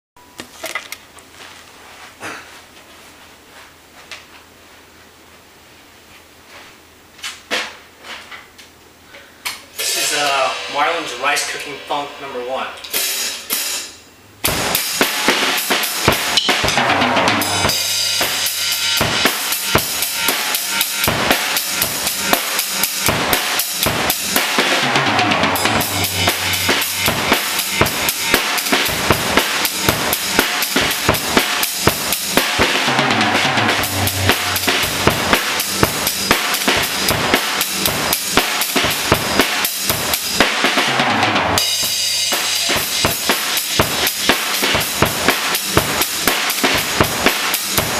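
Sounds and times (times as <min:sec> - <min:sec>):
drum kit funk groove: 0:09.7 - 0:47.9
tom fill: 0:09.7 - 0:47.9.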